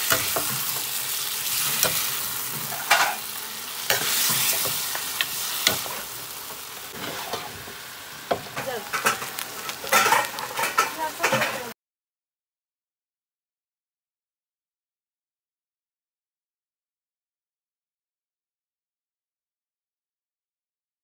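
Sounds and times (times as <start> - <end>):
meat sizzling in a pan: 0.0 - 11.7
spoon scraping and knocking pan: 0.0 - 11.7.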